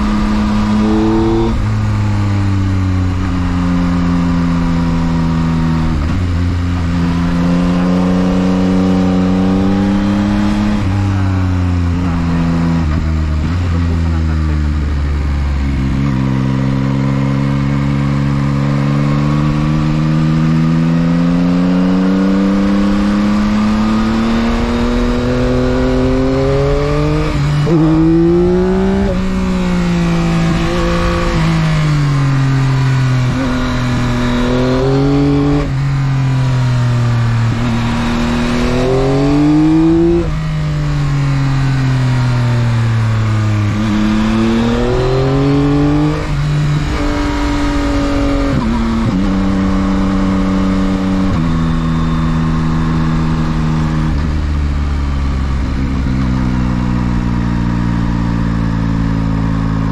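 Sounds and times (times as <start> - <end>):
rush of wind: 0.0 - 14.2, 21.8 - 59.9
motorcycle engine revving: 0.0 - 59.9.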